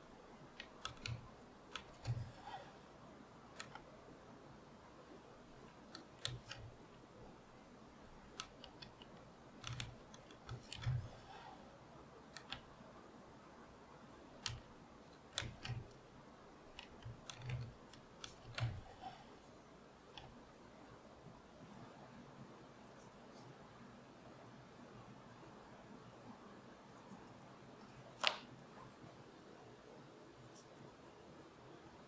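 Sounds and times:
hand stitching leather: 0:00.3 - 0:02.8, 0:03.5 - 0:04.0, 0:05.4 - 0:11.6, 0:14.3 - 0:20.4.

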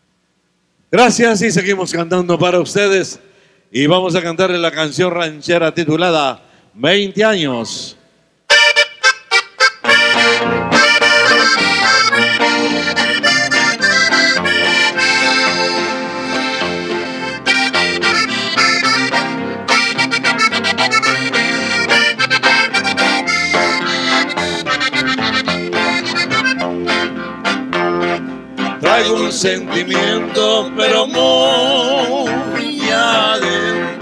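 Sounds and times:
button accordion melody: 0:08.5 - 0:34.0
strummed guitar: 0:08.5 - 0:34.0
electric bass: 0:08.6 - 0:34.0.

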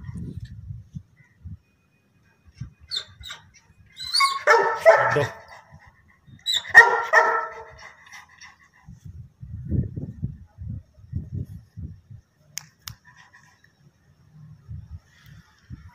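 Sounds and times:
dog barking: 0:04.2 - 0:05.5, 0:06.7 - 0:07.8.

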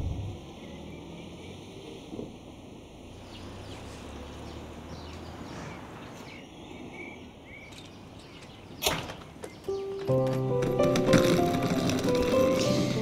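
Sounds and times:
low rumble: 0:00.0 - 0:00.5
small birds chirping: 0:03.1 - 0:10.1.

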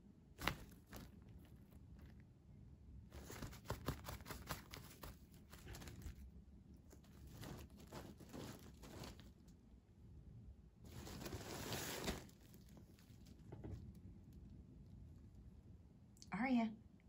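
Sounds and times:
fabric tunnel rustling: 0:00.4 - 0:02.2, 0:03.1 - 0:09.6, 0:10.8 - 0:14.0.

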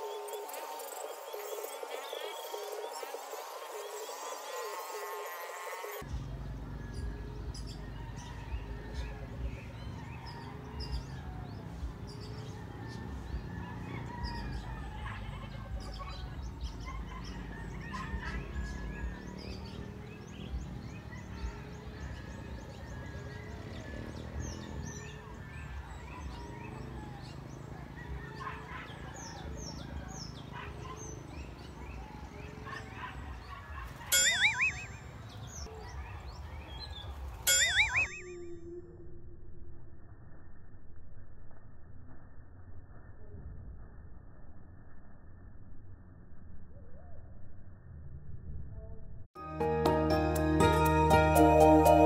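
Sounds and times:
small birds chirping: 0:00.0 - 0:38.6.

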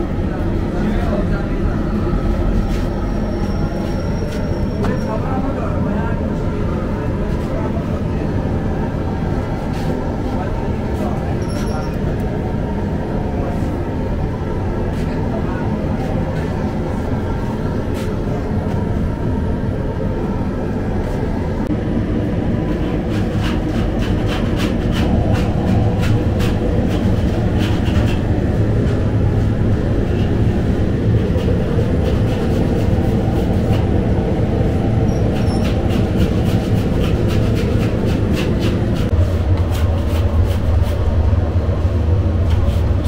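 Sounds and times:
bakery machinery rumbling: 0:21.6 - 0:43.0.

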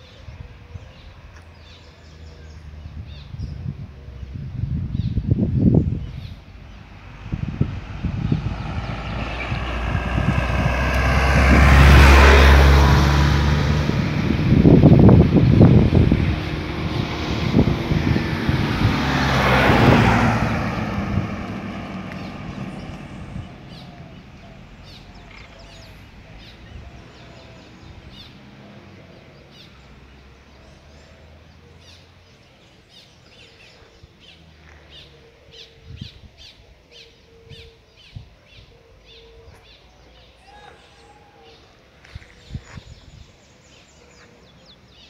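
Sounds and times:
birds chirping: 0:00.0 - 0:13.2, 0:14.6 - 0:45.0
motor vehicle passing: 0:02.0 - 0:35.6.

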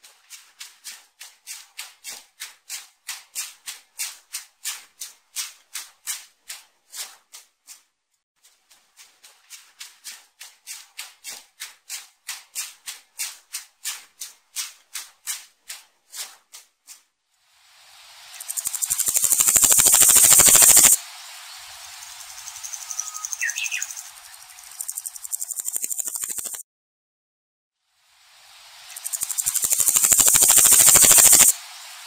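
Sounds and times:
locust buzzing rattle: 0:18.4 - 0:21.0, 0:22.0 - 0:26.6, 0:28.9 - 0:31.6
rasping pulses: 0:18.5 - 0:21.0, 0:24.6 - 0:26.6, 0:29.0 - 0:31.5.

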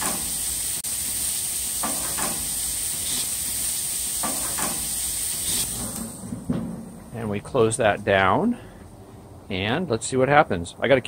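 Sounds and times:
chicken sizzling on a grill: 0:00.0 - 0:06.0.

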